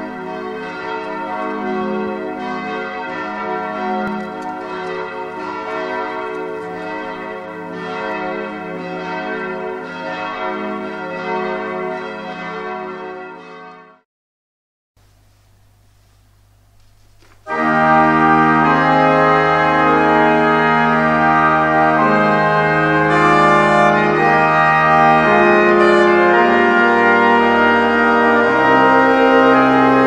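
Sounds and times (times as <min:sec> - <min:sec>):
church bells pealing: 0:00.0 - 0:14.0, 0:17.5 - 0:30.0.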